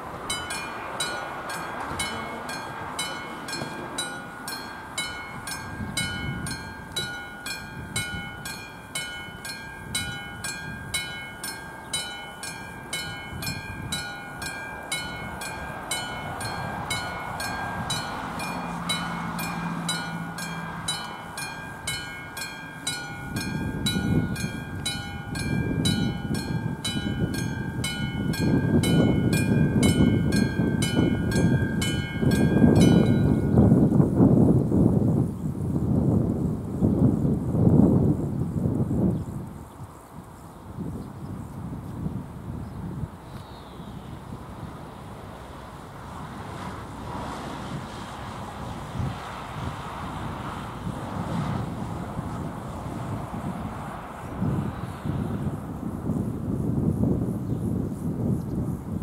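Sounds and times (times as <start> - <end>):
freight train rumble: 0.0 - 39.6, 41.4 - 59.0
level-crossing bell ringing: 0.3 - 33.7.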